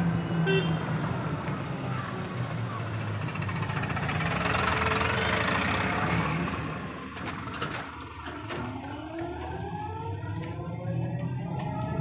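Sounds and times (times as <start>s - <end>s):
road noise and rattling: 0.0s - 12.0s.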